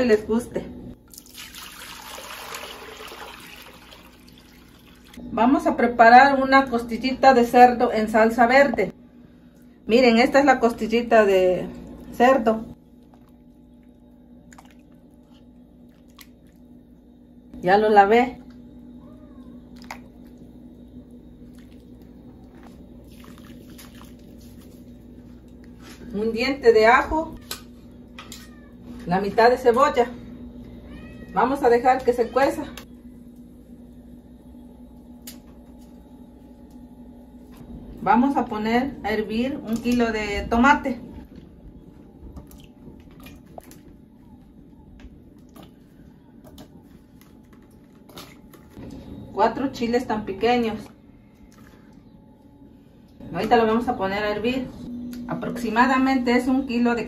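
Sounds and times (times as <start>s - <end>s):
steady low hum: 4.4s - 57.0s
wet squishing of meat: 14.5s - 16.6s, 21.4s - 25.0s, 42.4s - 44.3s, 45.2s - 48.8s.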